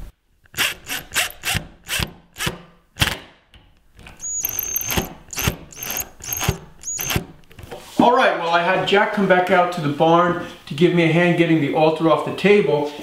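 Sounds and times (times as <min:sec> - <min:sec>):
cordless drill whining: 0:00.5 - 0:02.5, 0:04.0 - 0:07.5
screw squealing in wood: 0:00.5 - 0:02.5, 0:04.0 - 0:07.6.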